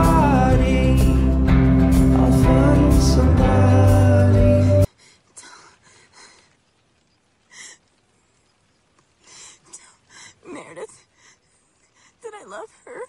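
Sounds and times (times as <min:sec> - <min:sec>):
song playing: 0:00.0 - 0:04.9
woman whispering: 0:12.2 - 0:13.0.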